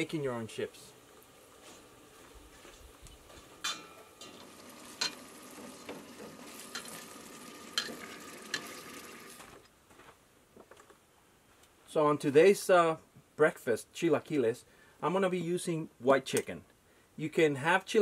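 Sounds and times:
chicken frying in hot oil: 0:04.2 - 0:09.6.

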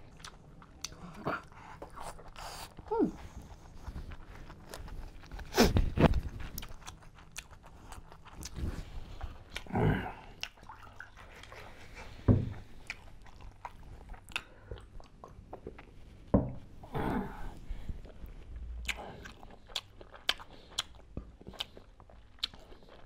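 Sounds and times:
man chewing and lip-smacking: 0:00.0 - 0:16.2, 0:18.0 - 0:23.0.

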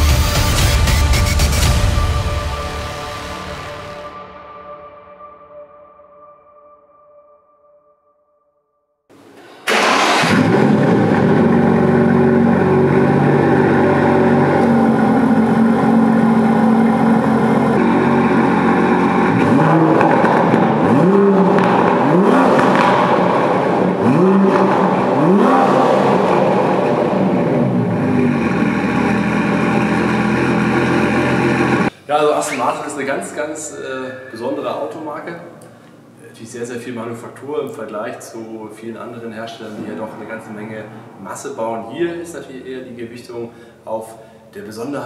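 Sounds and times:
car engine idling and revving: 0:09.7 - 0:31.9, 0:39.7 - 0:41.3.

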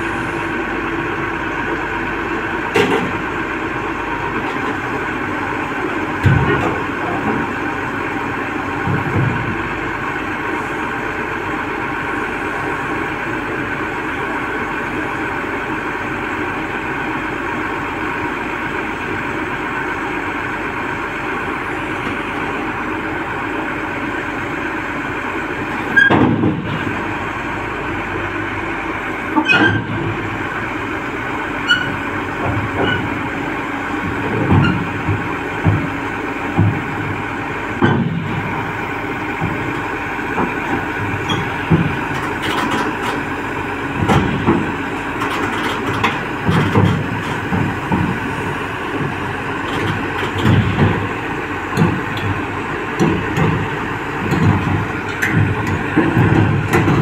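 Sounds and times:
excavator diesel engine running: 0:00.0 - 0:57.0
steel tracks clanking: 0:25.7 - 0:57.0.

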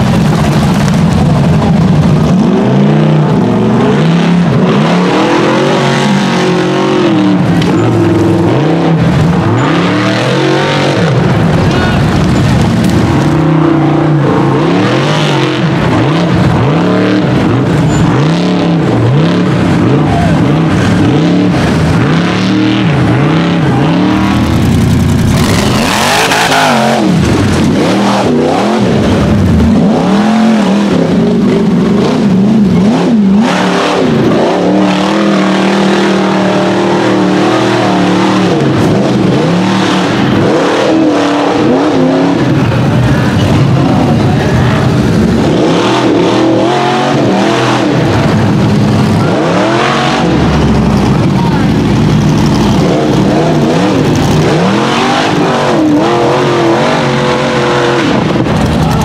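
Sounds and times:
buggy engines revving: 0:00.0 - 0:59.0.

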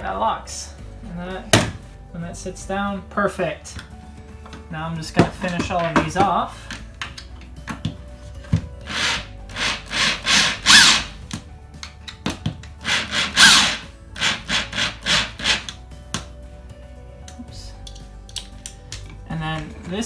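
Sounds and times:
electric drill driving screws: 0:08.8 - 0:11.2, 0:12.8 - 0:15.8
screws grinding into wood: 0:08.8 - 0:11.2, 0:12.8 - 0:15.8.

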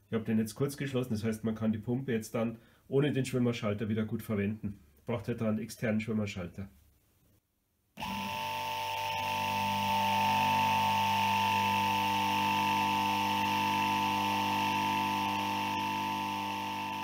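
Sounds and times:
pump motor hum and whine: 0:08.0 - 0:17.0.

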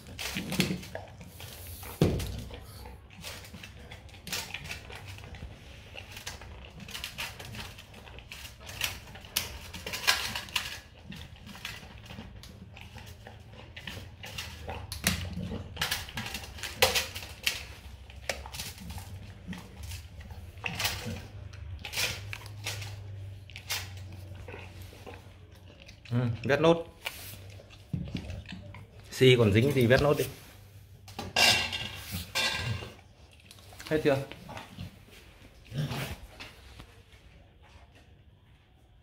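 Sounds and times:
metal bowl clinking and scraping: 0:31.2 - 0:33.0.

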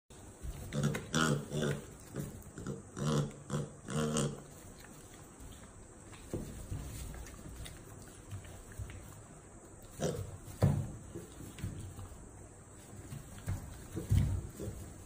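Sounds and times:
piglet grunting: 0:00.6 - 0:04.7.

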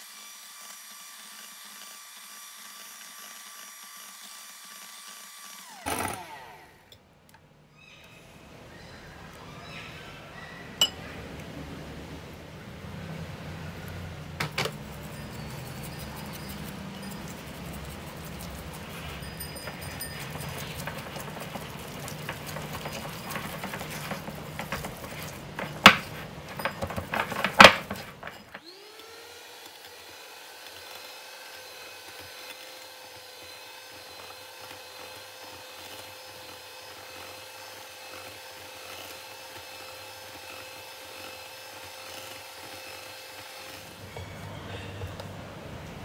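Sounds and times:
small electric motor whining: 0:00.0 - 0:07.0, 0:28.6 - 0:44.2.

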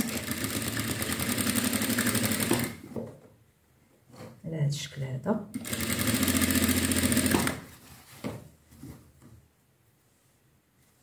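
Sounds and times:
sewing machine stitching: 0:00.0 - 0:02.8, 0:05.6 - 0:07.7
faint handling sounds: 0:07.7 - 0:11.0.

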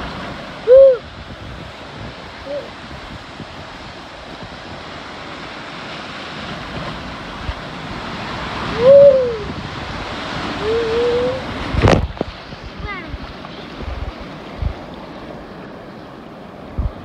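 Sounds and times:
wind noise on microphone: 0:00.0 - 0:15.5, 0:16.5 - 0:17.0
water rushing down slide: 0:00.0 - 0:15.9
person calling out: 0:02.4 - 0:02.7, 0:10.6 - 0:11.4.

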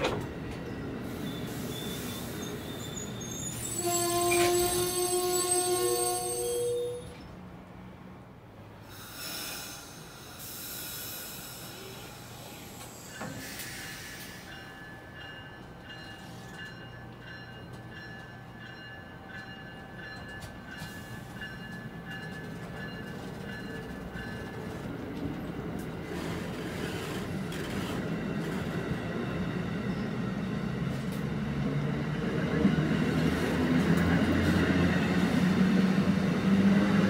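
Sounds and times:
train wheels rumbling on rail: 0:00.0 - 0:37.0.

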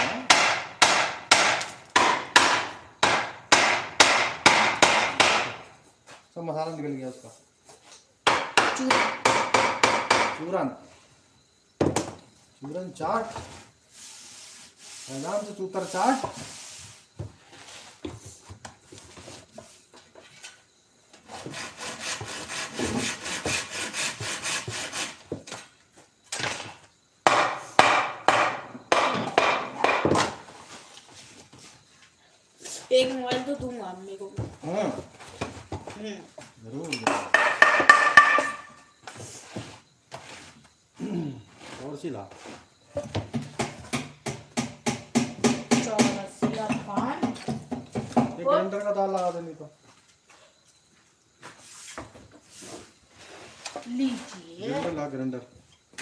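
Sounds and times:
sharp knocks on wood: 0:00.0 - 0:05.6, 0:08.2 - 0:10.5, 0:11.8 - 0:12.2, 0:27.2 - 0:30.4, 0:37.0 - 0:38.8, 0:43.0 - 0:48.4
sanding wooden frame by hand: 0:13.9 - 0:17.0, 0:21.3 - 0:25.2.

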